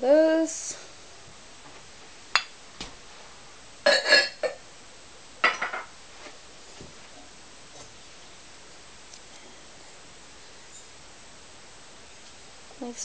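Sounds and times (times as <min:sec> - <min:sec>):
ceramic pots clinking: 0:05.4 - 0:05.9.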